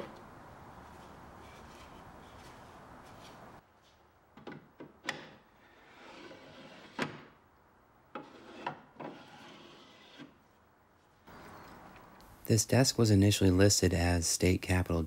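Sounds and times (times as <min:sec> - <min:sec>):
wood rubbing on wood: 0:08.2 - 0:10.5.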